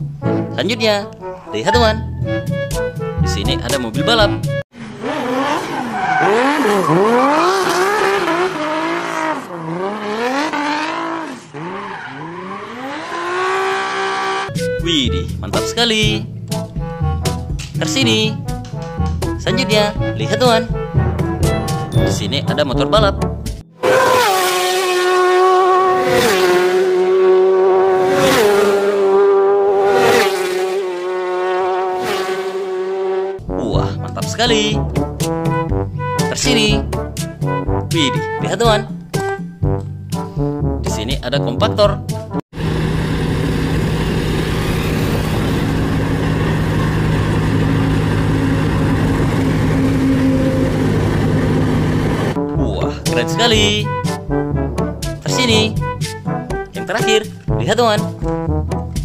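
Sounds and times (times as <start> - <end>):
racing motorcycles passing by: 4.8 - 14.5, 23.8 - 33.4, 42.6 - 52.4
car engine revving: 4.8 - 14.7, 23.8 - 33.5, 42.6 - 52.4
tyres screeching: 5.4 - 9.4.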